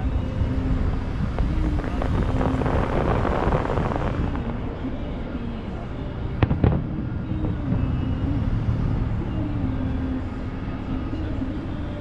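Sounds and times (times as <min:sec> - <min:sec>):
low rumble of firework bursts: 0:00.4 - 0:04.6, 0:06.4 - 0:08.2.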